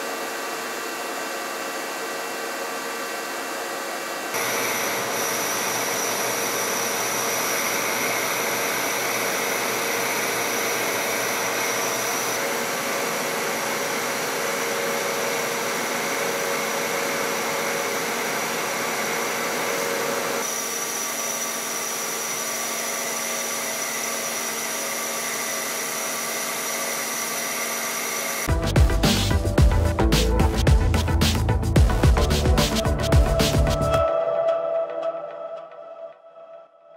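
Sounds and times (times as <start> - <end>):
lathe whirring and hissing: 0.0 - 28.5
steady machine tones: 4.4 - 19.4
electronic music: 28.5 - 36.8.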